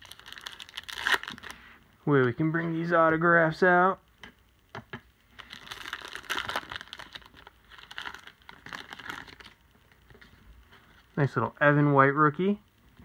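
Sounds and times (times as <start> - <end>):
wrapper crinkling as torn open: 0.0 - 1.6, 5.4 - 10.1.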